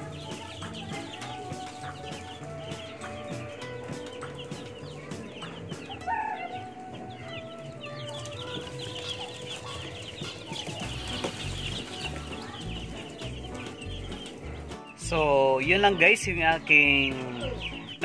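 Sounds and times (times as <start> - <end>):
chicks peeping: 0.0 - 18.0.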